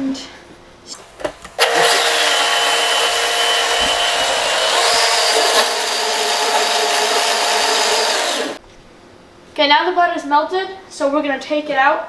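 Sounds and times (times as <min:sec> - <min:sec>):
blender motor whining: 0:01.1 - 0:08.6.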